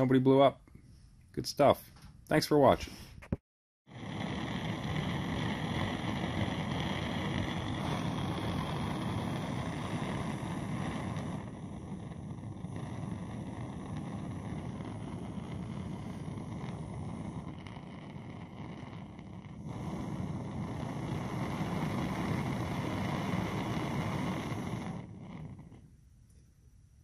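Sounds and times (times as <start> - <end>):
blowtorch burning rush: 3.9 - 26.0.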